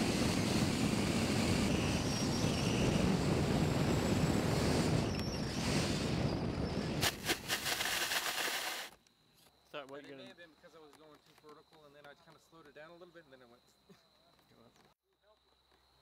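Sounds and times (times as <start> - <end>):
wind roaring past microphone: 0.0 - 7.6.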